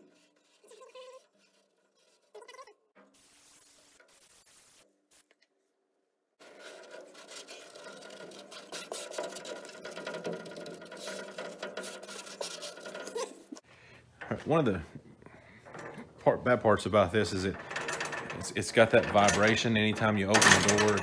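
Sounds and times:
hands rubbing carpet on metal: 6.4s - 13.6s.

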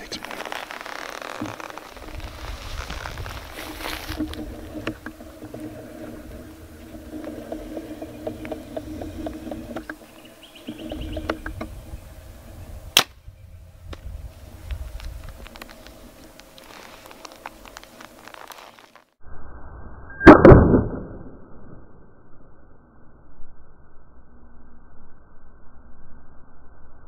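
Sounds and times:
bow loosing an arrow crack: 0.0s - 5.9s, 13.9s - 19.1s.

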